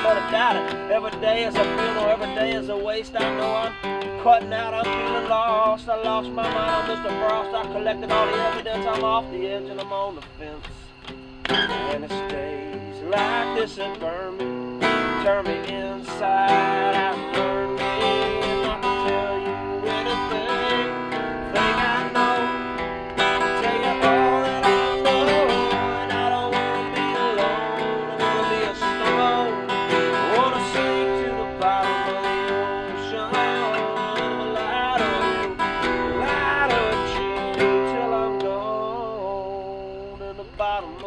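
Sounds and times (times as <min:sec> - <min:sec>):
acoustic guitar strummed chords: 0:00.0 - 0:41.0
bending guitar melody: 0:00.0 - 0:41.0.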